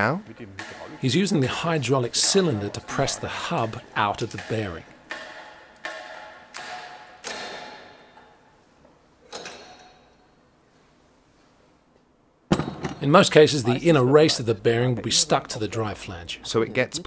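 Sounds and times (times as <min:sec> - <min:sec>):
sharp metallic clanks: 0:00.6 - 0:08.4.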